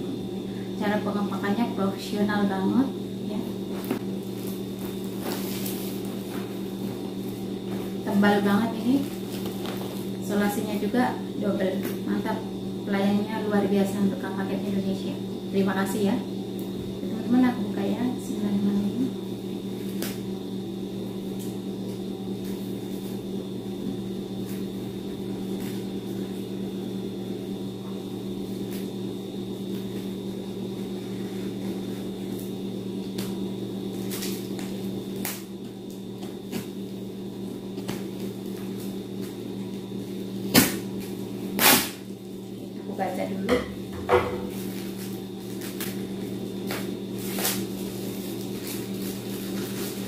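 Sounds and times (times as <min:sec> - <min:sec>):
scissors cutting tape: 0:41.6 - 0:42.0.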